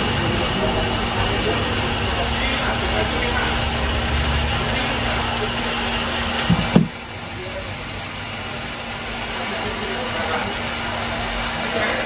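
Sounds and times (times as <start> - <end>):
phone handling knocks: 6.5 - 7.0.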